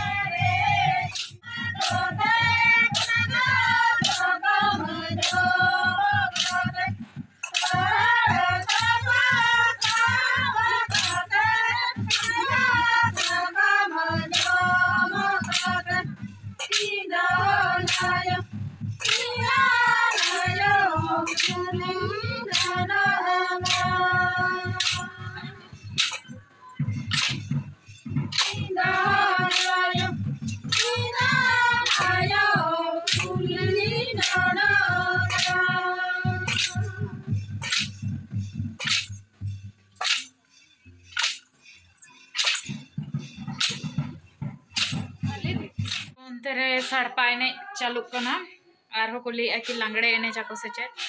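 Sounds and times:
women singing together: 0.0 - 26.3, 28.3 - 37.9, 49.6 - 51.0
sharp clicking beat: 0.0 - 46.2.

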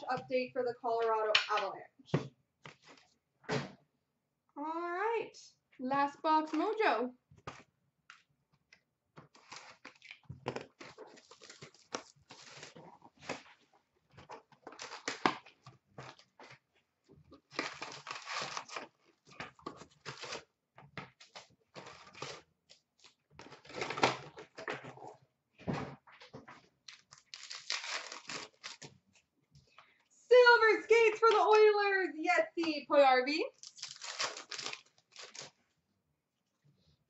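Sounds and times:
cellophane crinkling and tearing: 9.3 - 16.6, 17.3 - 20.5, 21.2 - 25.1, 26.8 - 29.0, 33.5 - 35.6
packs handled: 26.9 - 28.9, 33.6 - 35.6.

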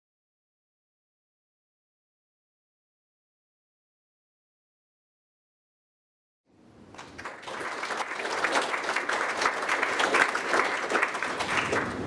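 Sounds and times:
audience applauding: 6.9 - 12.0.

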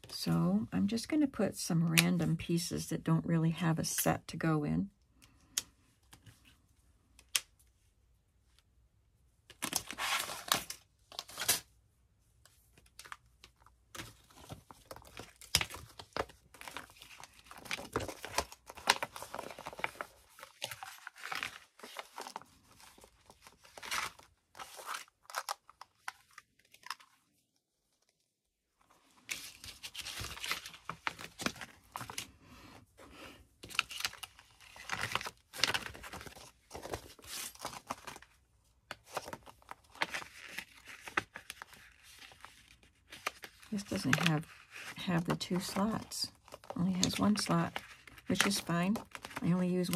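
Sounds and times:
pouches rustling and crinkling: 12.4 - 28.2, 28.8 - 32.4, 33.0 - 49.9.

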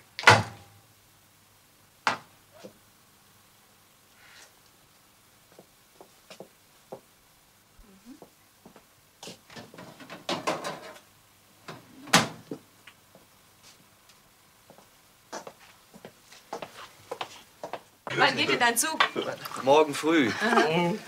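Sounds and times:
objects knocking and clattering: 9.5 - 11.0.

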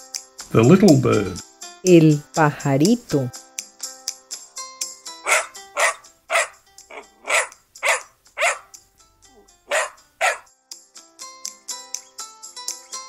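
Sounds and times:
puppy barking: 5.2 - 8.7, 9.4 - 10.5.

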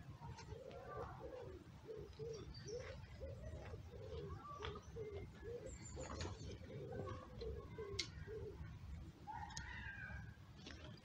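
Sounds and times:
faint high bird chirps: 0.2 - 8.7.

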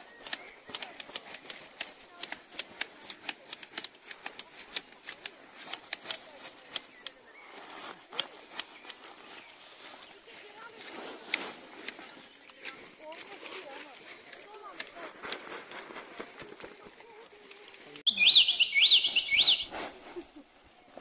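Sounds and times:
shears snipping bushes: 0.1 - 7.2, 11.2 - 16.7.

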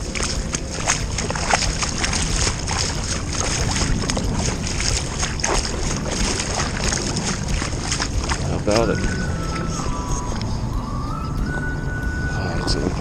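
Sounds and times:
small splashes and drips: 0.0 - 10.5
water lapping against kayak hull: 0.0 - 10.6
steady low rumble: 0.0 - 13.0.

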